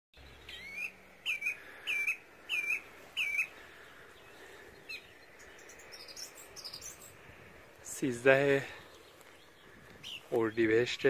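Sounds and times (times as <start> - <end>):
songbird whistling: 0.2 - 3.6, 4.3 - 7.2, 8.8 - 10.3.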